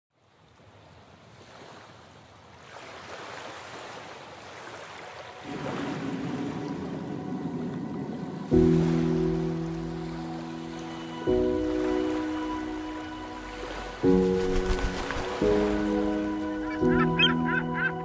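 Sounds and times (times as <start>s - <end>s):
surf washing onto sand: 14.1s - 15.8s.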